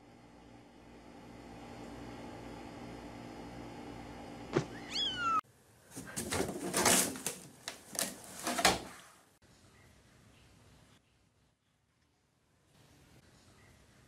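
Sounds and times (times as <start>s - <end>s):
kitten mewing: 4.6s - 5.4s.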